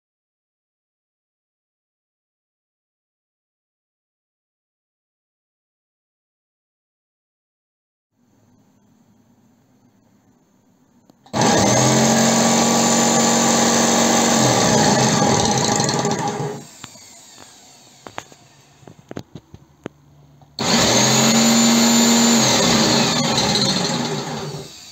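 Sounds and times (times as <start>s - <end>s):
workshop vacuum motor whine: 11.3s - 19.2s, 20.6s - 24.9s.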